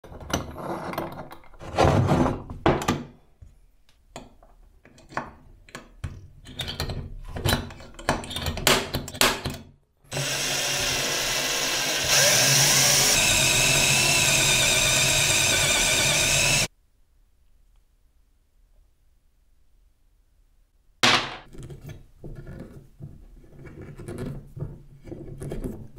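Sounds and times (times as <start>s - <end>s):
drill bit cutting metal: 10.1s - 16.7s
electric drill whining: 10.1s - 16.7s.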